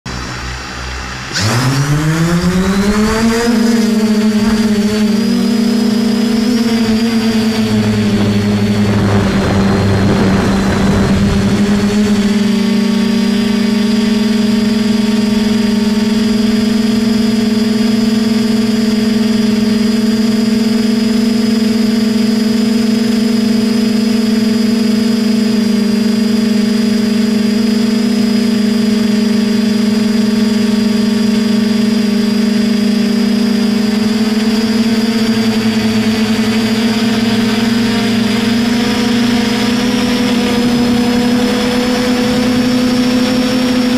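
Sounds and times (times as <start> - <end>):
quadcopter propellers humming: 0.0 - 43.9
rush of air noise: 0.1 - 17.7.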